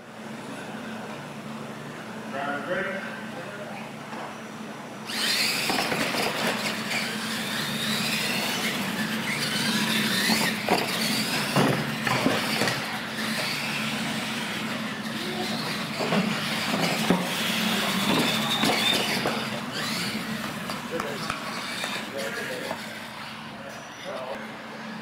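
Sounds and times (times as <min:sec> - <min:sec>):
toy truck motors whining: 0:05.1 - 0:25.0.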